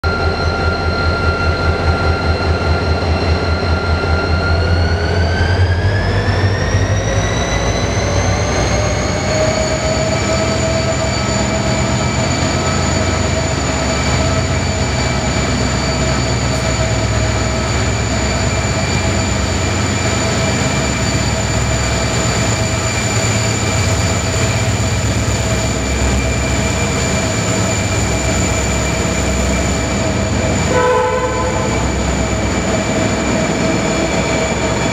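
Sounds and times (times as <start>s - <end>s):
locomotive engine rumble: 0.0s - 34.9s
locomotive whine: 0.0s - 34.9s.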